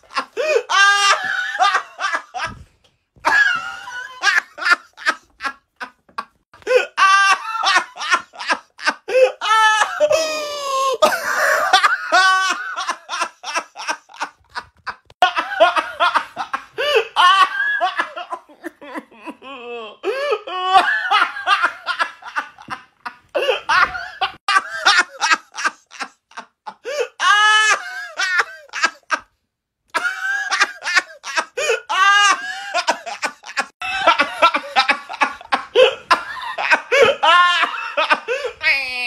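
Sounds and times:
man laughing loudly: 0:00.0 - 0:02.6, 0:03.2 - 0:29.3, 0:30.0 - 0:39.0.

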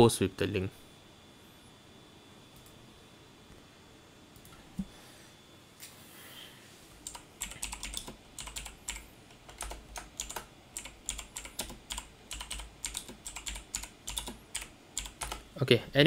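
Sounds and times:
keyboard typing clicks: 0:07.0 - 0:15.4.

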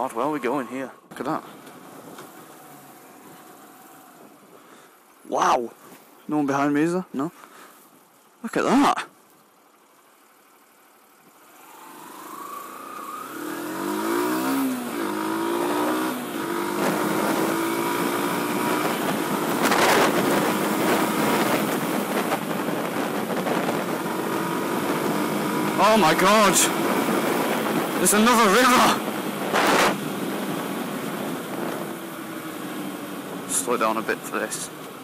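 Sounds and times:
motorcycle engine revving: 0:00.0 - 0:04.9, 0:10.4 - 0:35.0
wind rushing over microphone: 0:13.2 - 0:33.6.

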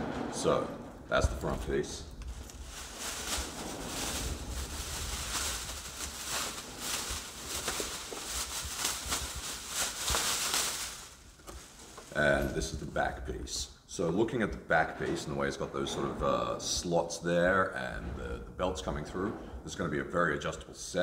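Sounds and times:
plastic bag crinkling: 0:01.5 - 0:12.8.

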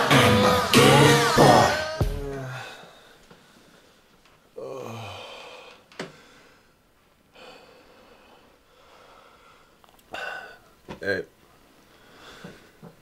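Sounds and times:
man sighing heavily: 0:02.2 - 0:03.0, 0:04.6 - 0:06.1.

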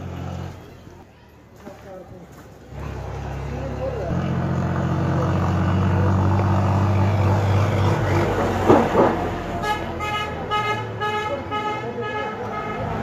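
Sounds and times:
vehicle engine running: 0:00.0 - 0:00.9, 0:02.8 - 0:09.7.

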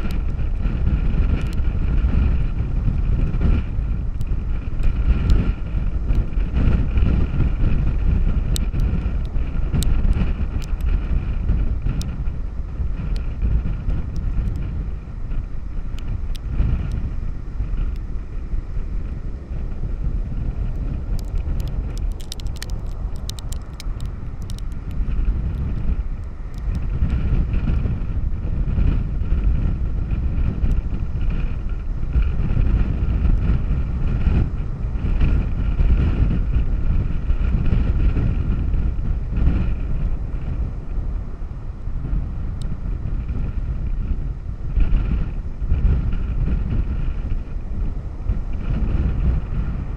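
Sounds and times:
heavy low rumble: 0:00.0 - 0:49.9
wind buffeting the microphone: 0:00.0 - 0:49.9
spatter of small ticks: 0:08.5 - 0:11.0, 0:14.4 - 0:14.7, 0:20.7 - 0:26.9.

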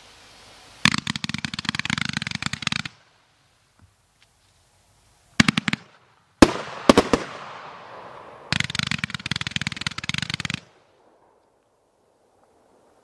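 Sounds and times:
firework crackling: 0:00.0 - 0:03.8, 0:05.3 - 0:13.0.

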